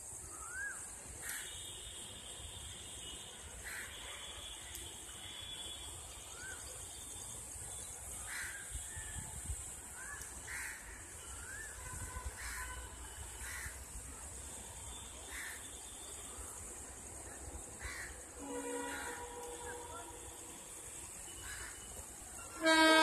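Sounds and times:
crow cawing: 0:03.6 - 0:04.0, 0:08.3 - 0:08.6, 0:10.0 - 0:11.0, 0:12.4 - 0:12.8, 0:13.4 - 0:13.8, 0:15.2 - 0:15.6, 0:17.8 - 0:18.1, 0:21.4 - 0:21.9.

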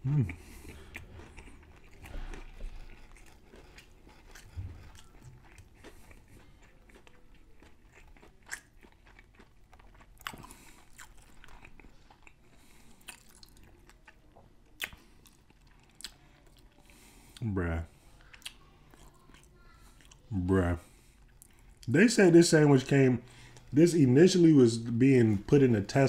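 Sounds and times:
wet chewing sounds: 0:00.0 - 0:22.0
crunching fried breading: 0:00.2 - 0:17.1.

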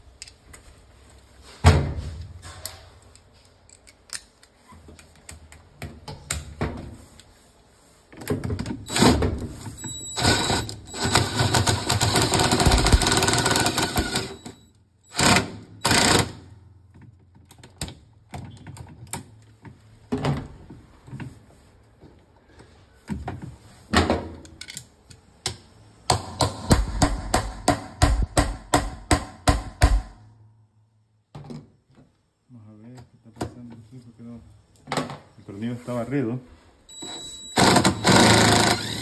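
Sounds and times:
cordless drill clattering: 0:10.2 - 0:14.4, 0:37.6 - 0:39.0.

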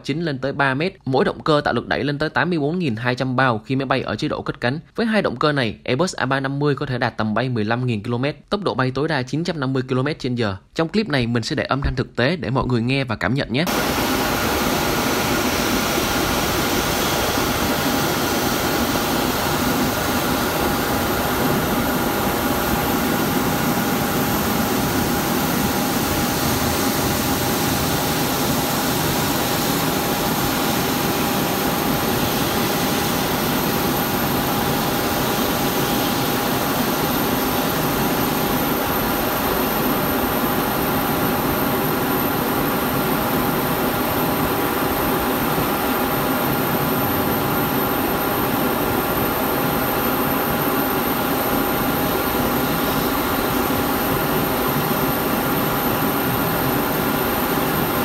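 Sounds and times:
jet engines taxiing: 0:13.7 - 0:58.0.

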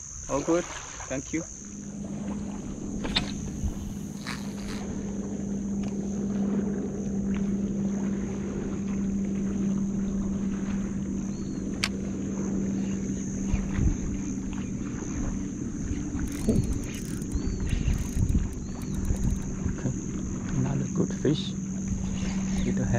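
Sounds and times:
steady low drone: 0:01.4 - 0:22.9
fishing reel ticking: 0:02.8 - 0:05.1, 0:16.0 - 0:20.0.

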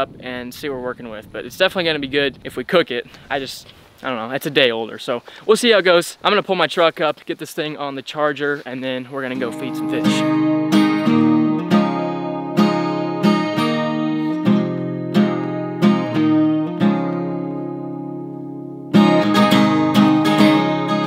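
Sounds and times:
acoustic guitar strumming: 0:09.3 - 0:21.0.

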